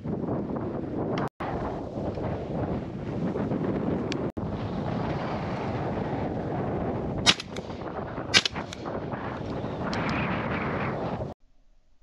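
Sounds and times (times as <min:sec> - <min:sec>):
wind buffeting microphone: 0:00.0 - 0:11.4
shotgun shots: 0:07.2 - 0:07.7, 0:08.3 - 0:08.8.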